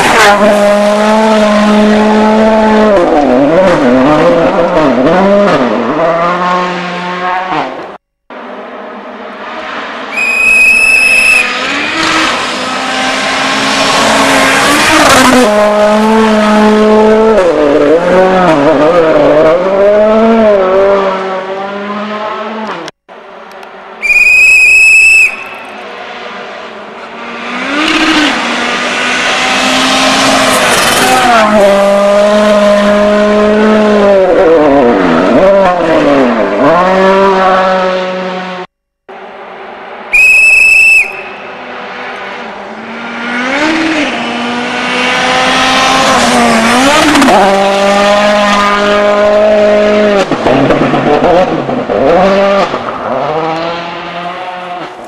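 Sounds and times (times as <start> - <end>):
rally cars passing at full throttle: 0.0 - 55.0
whistle blast: 10.1 - 11.6, 24.0 - 25.8, 40.1 - 41.5.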